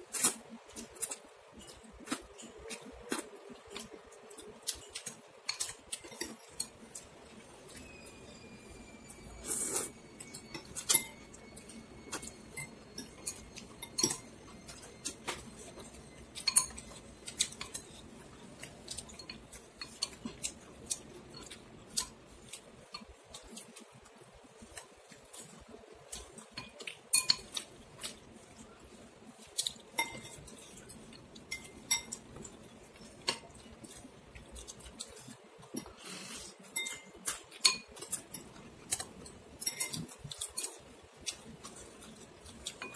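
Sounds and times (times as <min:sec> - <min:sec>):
spoon and chopsticks clinking bowl: 0:03.8 - 0:23.9, 0:24.6 - 0:28.2, 0:29.7 - 0:34.0, 0:36.7 - 0:42.9.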